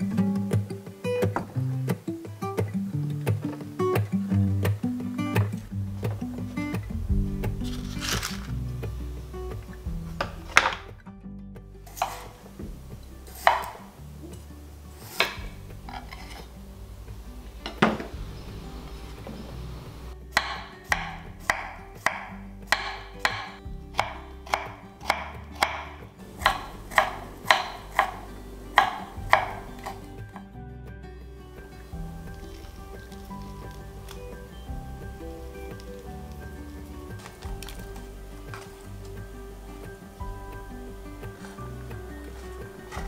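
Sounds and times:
soft background music: 0.0s - 43.0s
knife cutting vegetables on board: 11.9s - 12.4s, 13.3s - 13.9s, 15.0s - 16.5s, 20.4s - 30.1s, 42.2s - 43.0s.

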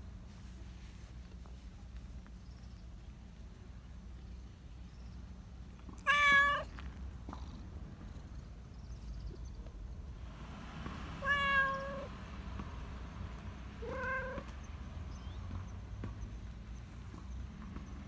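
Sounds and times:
cat meowing: 6.0s - 6.7s, 11.2s - 12.1s, 13.8s - 14.5s.

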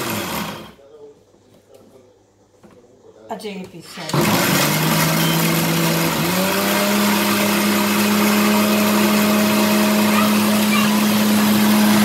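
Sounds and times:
mixer grinder grinding spices: 0.0s - 0.7s, 4.2s - 12.0s.

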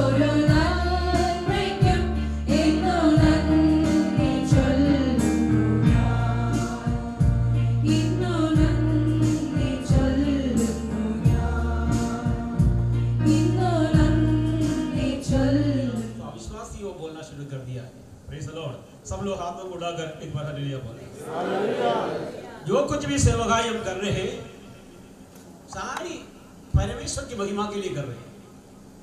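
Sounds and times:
group singing a hymn: 0.0s - 15.8s, 21.2s - 22.4s
held bass notes: 0.0s - 16.1s.

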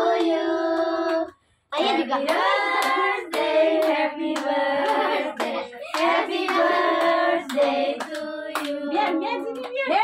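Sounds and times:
group singing a celebration song: 0.0s - 10.0s
hands clapping: 2.2s - 10.0s.

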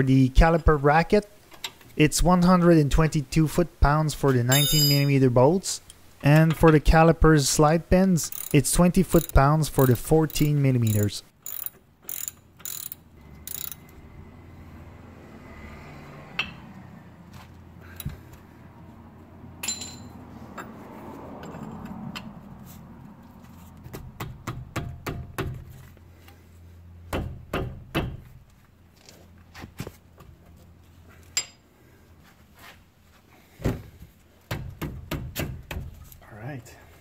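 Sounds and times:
hand tools clinking on metal: 4.5s - 5.2s, 8.2s - 13.8s, 19.6s - 20.7s.

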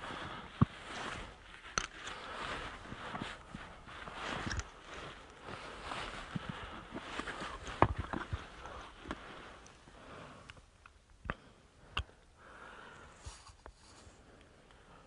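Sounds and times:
rustling near microphone: 0.0s - 10.5s, 12.9s - 14.4s.

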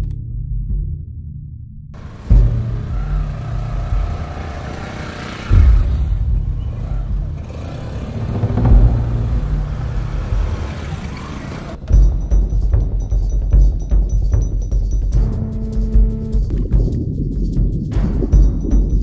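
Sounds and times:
motorcycle engines revving: 2.0s - 11.9s.

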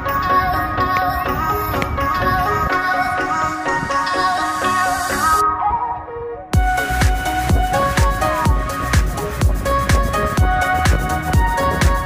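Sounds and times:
background music with beat: 0.0s - 12.0s
deep kick drum: 6.6s - 12.0s.

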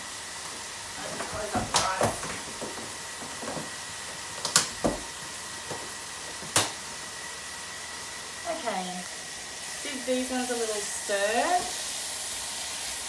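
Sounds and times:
chicken frying in a wok: 0.0s - 13.0s
knocks on kitchen bench: 4.7s - 5.1s.

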